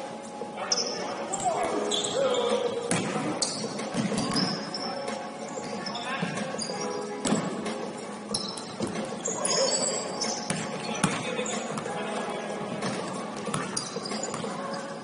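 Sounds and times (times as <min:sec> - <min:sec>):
sneakers squeaking on court: 0:00.7 - 0:15.0
basketball bouncing: 0:10.5 - 0:11.8.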